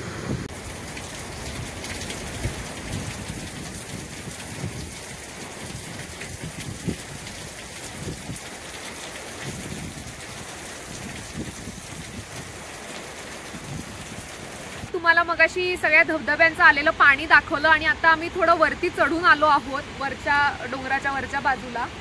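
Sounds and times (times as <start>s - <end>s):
rain hissing: 0.0s - 14.9s
rushing water: 0.0s - 22.0s.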